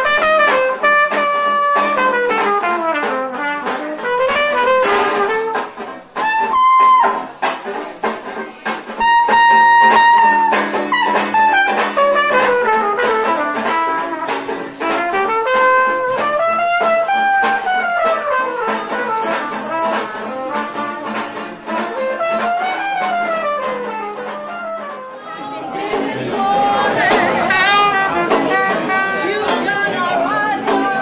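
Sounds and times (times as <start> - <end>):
trumpet melody: 0.0 - 25.4, 27.0 - 29.5
plucked string accompaniment: 0.0 - 31.0.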